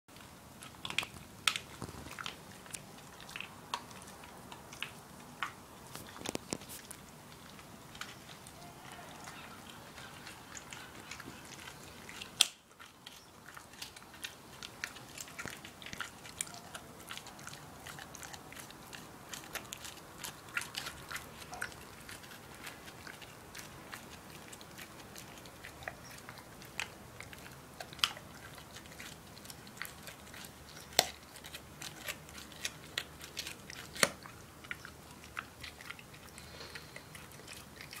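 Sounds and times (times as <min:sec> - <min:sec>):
dog chewing a rawhide bone: 0:00.1 - 0:38.0
sharp cracks of bone: 0:12.1 - 0:12.8, 0:30.9 - 0:34.3.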